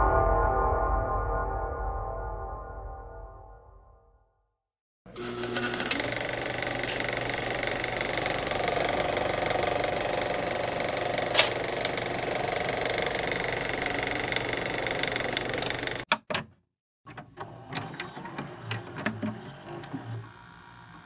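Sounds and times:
low hum: 0.0 - 4.0
mechanical buzzing drone: 5.1 - 16.0, 18.3 - 21.0.

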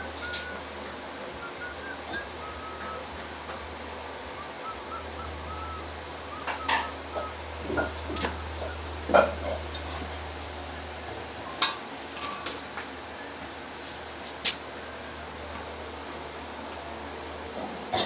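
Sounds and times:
steady low hum: 0.0 - 18.0
faint chirps: 4.3 - 7.4
metal tools clanking: 12.2 - 12.6.

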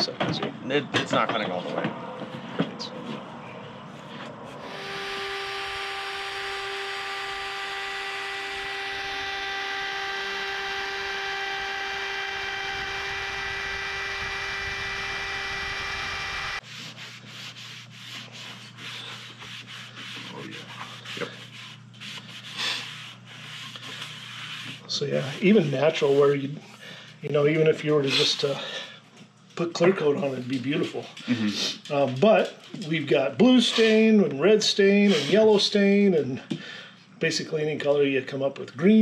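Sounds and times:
low hum: 2.0 - 16.6
wood router whining: 4.5 - 16.6
rubbing and scraping on wood: 16.6 - 26.4.

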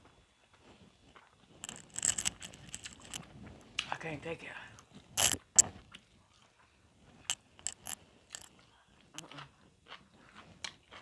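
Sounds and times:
chewing clicks: 1.2 - 3.3, 5.2 - 6.0, 7.2 - 10.0
crunching broccoli: 1.2 - 3.3, 5.2 - 5.7, 7.2 - 8.6.

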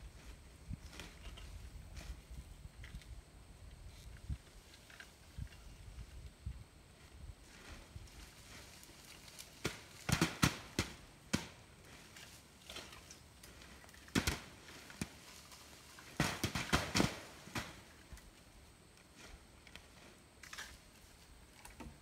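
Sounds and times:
apples dropping onto plastic tarp: 8.5 - 18.4.

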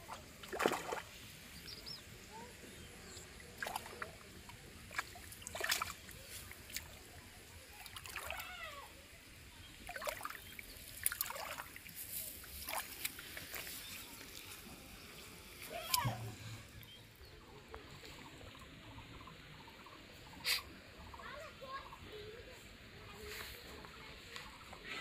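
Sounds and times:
fish thrashing in water: 0.0 - 1.1, 3.5 - 7.0, 9.8 - 14.4.

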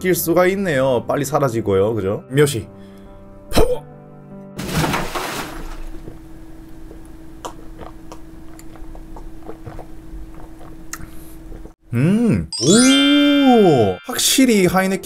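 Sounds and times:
person gulping and swallowing: 7.4 - 11.8.

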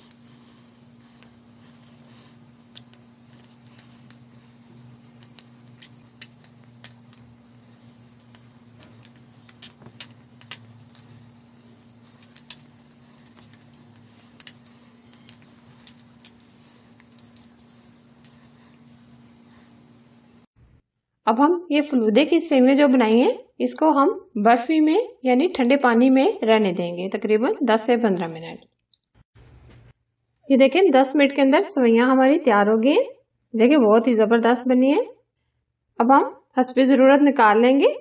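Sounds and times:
faint hum: 0.0 - 27.3.

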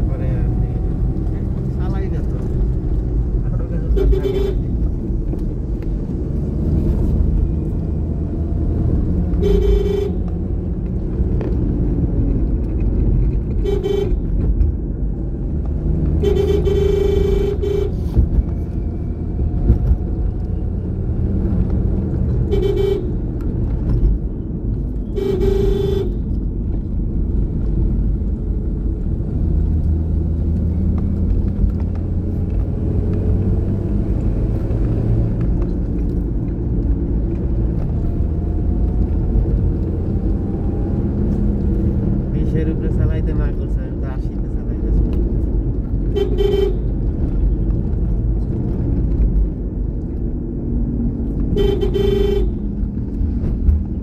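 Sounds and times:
vehicle engine and tyres rumbling: 0.0 - 54.0
vehicle horn tooting: 4.0 - 4.6, 9.4 - 10.2, 13.6 - 14.2, 16.2 - 18.0, 22.5 - 23.1, 25.2 - 26.2, 46.1 - 46.9, 51.6 - 52.6.

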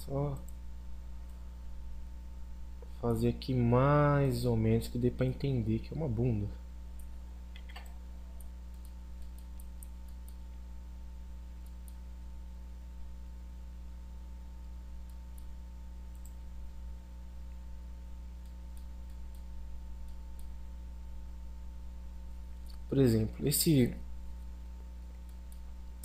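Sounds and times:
steady low hum: 0.0 - 26.0
computer mouse clicks: 7.0 - 10.4, 16.1 - 16.4, 18.4 - 20.6.

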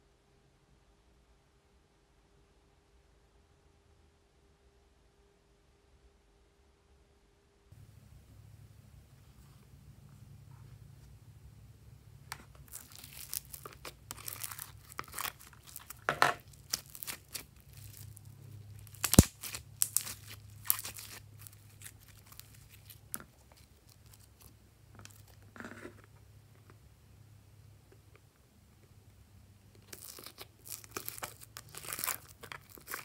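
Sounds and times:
slime crackling and snapping: 12.6 - 25.4, 29.8 - 33.0.

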